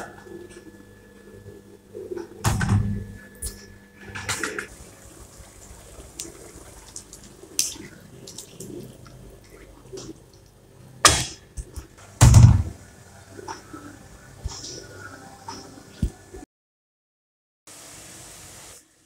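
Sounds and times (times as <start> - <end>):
faint sizzling: 3.2 - 11.0.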